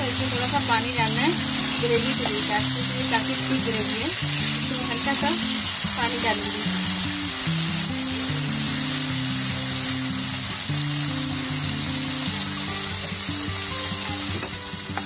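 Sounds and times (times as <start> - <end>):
background music: 0.0 - 15.0
gravy sizzling in a pan: 0.0 - 15.0.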